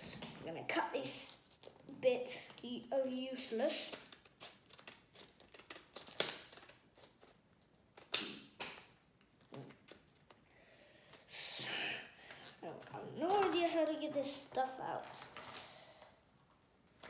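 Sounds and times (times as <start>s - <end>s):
plastic packaging crackling: 3.7s - 10.5s, 12.2s - 15.7s
sharp plastic snaps: 3.8s - 7.3s, 7.9s - 10.4s.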